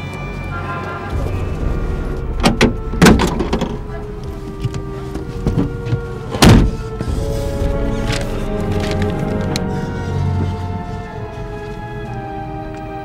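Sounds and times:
background music: 0:00.0 - 0:13.0
car door thunks: 0:02.2 - 0:07.2.

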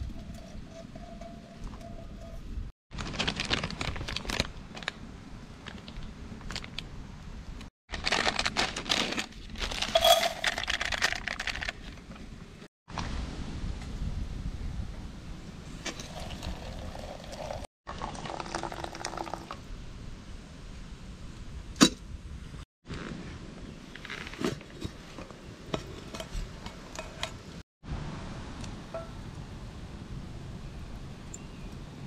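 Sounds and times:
aluminium pots clinking: 0:09.8 - 0:11.0
water poured into metal pot: 0:15.9 - 0:19.6.

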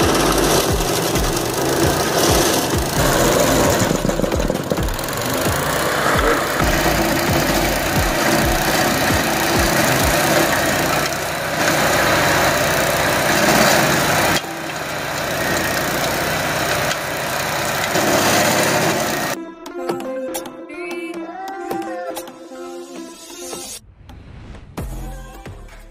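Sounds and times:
low thumps: 0:00.0 - 0:10.2
stump grinder engine grinding: 0:00.0 - 0:19.4.

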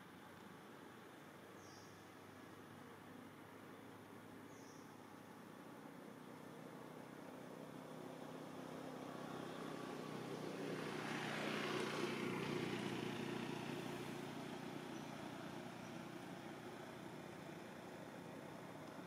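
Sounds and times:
vehicle engine passing by: 0:06.7 - 0:18.8.

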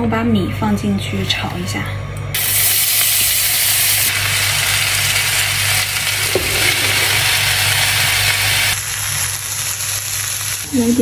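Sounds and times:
rice sizzling in hot oil: 0:02.4 - 0:11.0.

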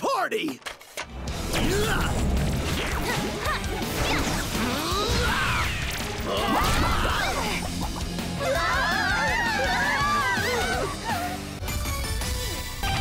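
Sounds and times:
background music: 0:00.9 - 0:13.0.

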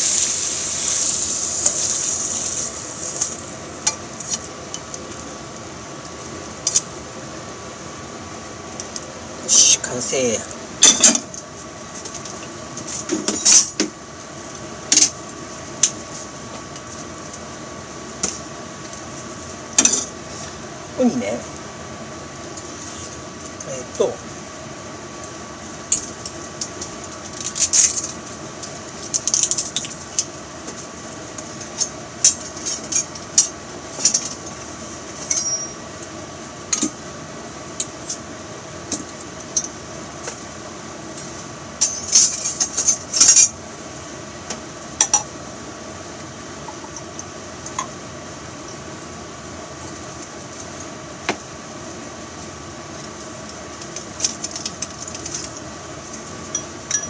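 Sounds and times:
steady hum: 0:00.0 - 0:57.0
dishes and glassware clinking: 0:35.3 - 0:35.8, 0:56.5 - 0:57.0.

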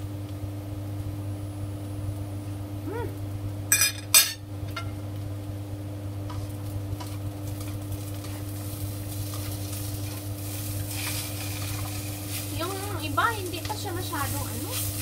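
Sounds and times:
potatoes frying in pan: 0:04.4 - 0:15.0.

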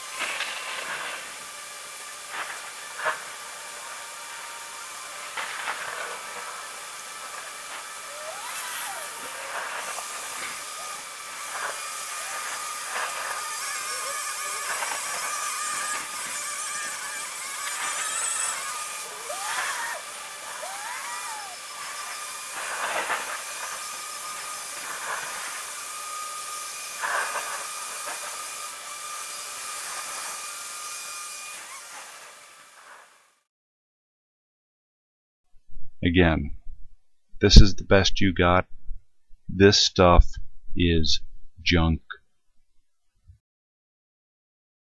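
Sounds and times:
steady hiss: 0:00.0 - 0:30.8.

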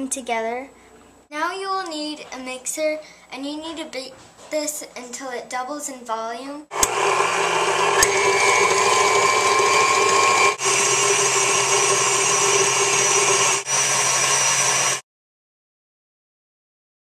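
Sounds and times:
electric mixer whirring: 0:06.7 - 0:15.0.

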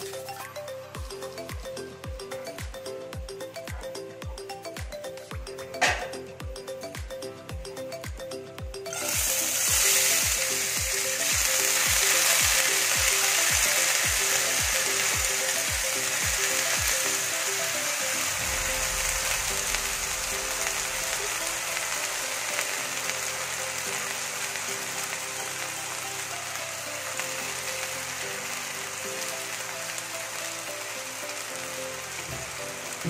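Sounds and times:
background music with steady beat: 0:00.0 - 0:33.0
lentils sizzling in hot ghee: 0:08.8 - 0:33.0.

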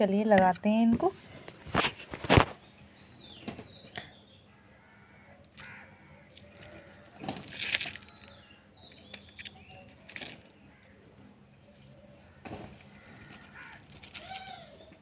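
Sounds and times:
dry soil scratching and crunching: 0:05.6 - 0:10.8.

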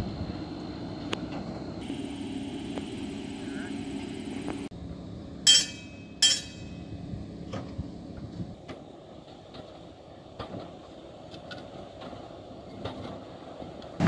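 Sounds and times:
streetcar rumbling on track: 0:03.4 - 0:14.0
wheels clicking over rail joints: 0:08.6 - 0:14.0.

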